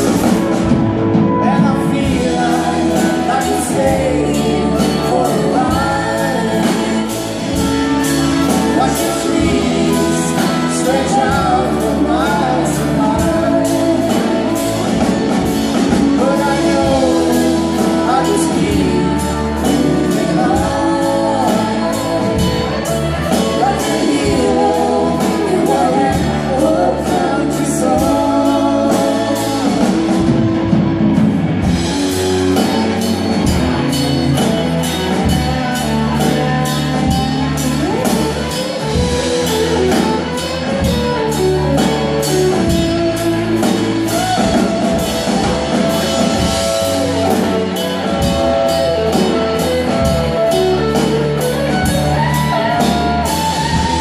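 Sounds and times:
live rock band playing: 0:00.0 - 0:54.0
steady drum beat: 0:00.0 - 0:54.0
woman singing: 0:01.2 - 0:30.3.

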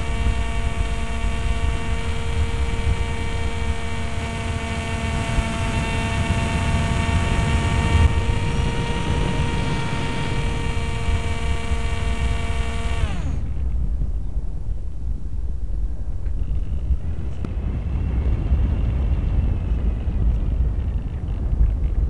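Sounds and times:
electric motor propeller whining: 0:00.0 - 0:13.8
wind rush on microphone: 0:00.0 - 0:22.0.

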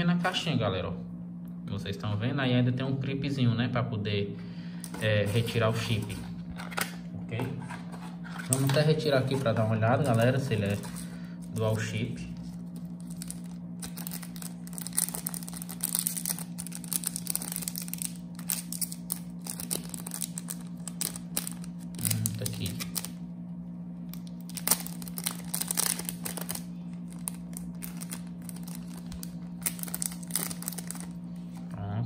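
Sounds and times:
low electrical hum: 0:00.0 - 0:32.0
plastic bag crinkling: 0:08.5 - 0:23.2, 0:24.1 - 0:31.7.

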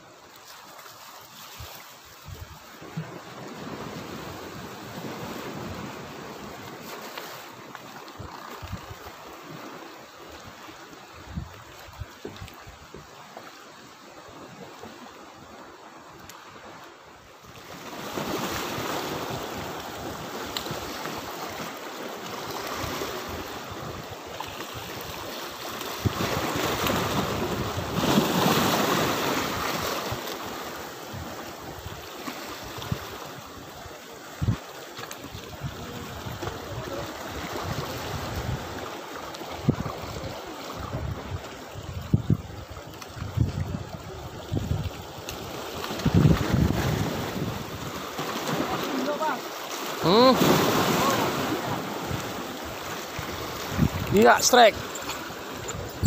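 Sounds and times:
sea waves washing against rocks: 0:00.0 - 0:56.0
wind buffeting microphone: 0:35.3 - 0:38.8, 0:39.5 - 0:48.7, 0:50.5 - 0:56.0.

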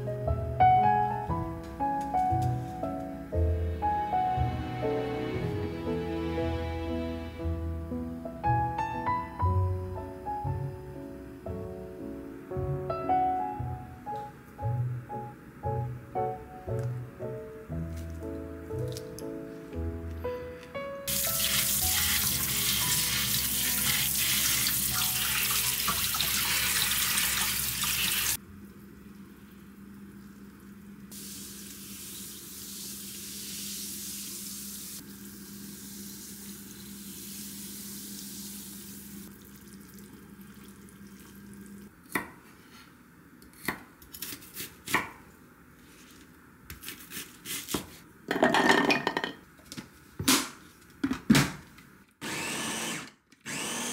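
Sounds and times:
soda fizzing: 0:21.1 - 0:28.4, 0:29.2 - 0:41.9
water running into metal tray: 0:21.1 - 0:28.4.

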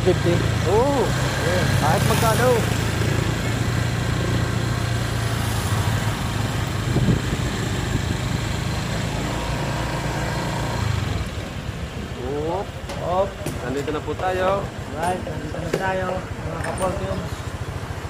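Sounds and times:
road noise: 0:00.0 - 0:18.0
vehicle engine running: 0:00.0 - 0:18.0
wind noise: 0:05.4 - 0:09.2.

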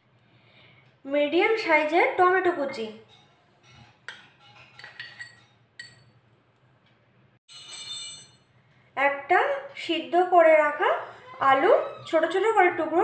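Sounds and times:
metal spoon clinking on glass bowls: 0:03.0 - 0:06.2, 0:07.5 - 0:08.5.

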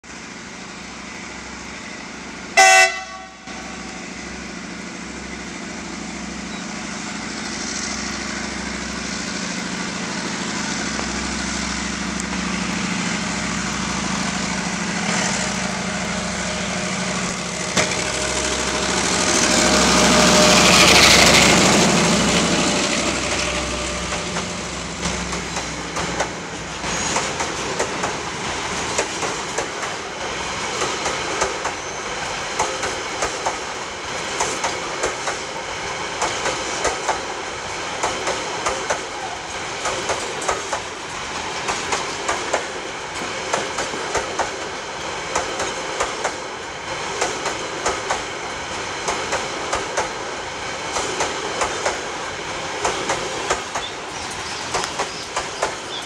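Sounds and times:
diesel locomotive engine: 0:00.0 - 0:56.0
train horn blast: 0:02.6 - 0:03.8
wagons clattering over rail joints: 0:21.0 - 0:30.0, 0:52.7 - 0:56.0.

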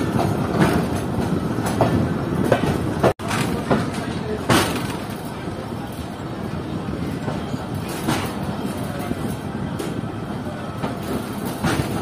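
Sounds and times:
wheels knocking on rail joints: 0:00.0 - 0:05.5
freight train rumbling: 0:00.0 - 0:12.0.

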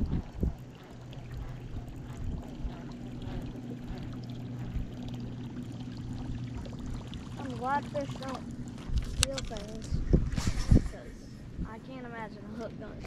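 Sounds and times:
steady low hum: 0:00.0 - 0:13.0
water lapping against boat hull: 0:00.0 - 0:13.0.

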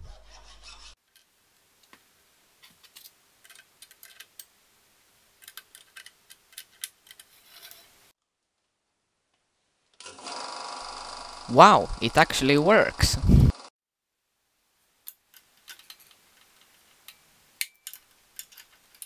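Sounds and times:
faint steady hiss: 0:01.0 - 0:10.0, 0:14.1 - 0:19.0.

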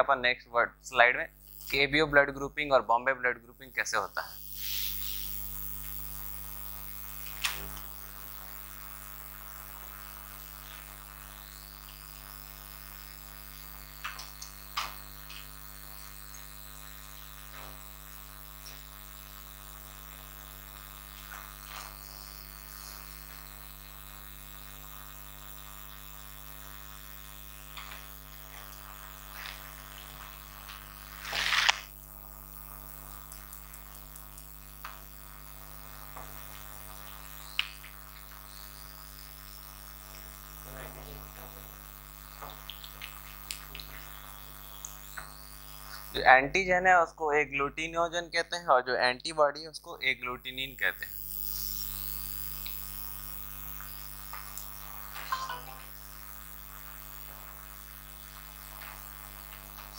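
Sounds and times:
electrical mains hum: 0:00.0 - 0:59.9
short burst of noise: 0:31.1 - 0:31.9.

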